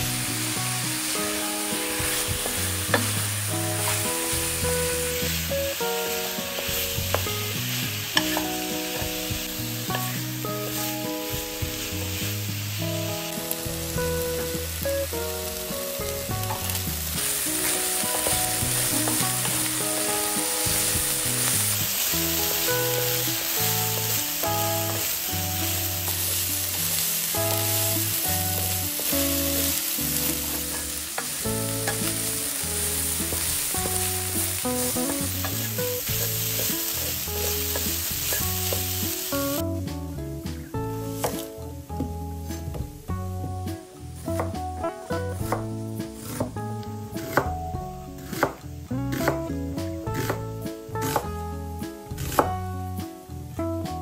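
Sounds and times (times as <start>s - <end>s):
spatula stirring: 0.0s - 12.9s, 15.7s - 39.2s
meat sizzling in a wok: 0.0s - 53.9s.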